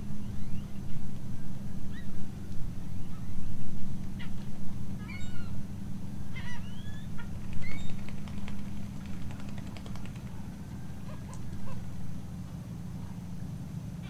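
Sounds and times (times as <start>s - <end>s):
water birds nasal calls: 10.7s - 12.0s.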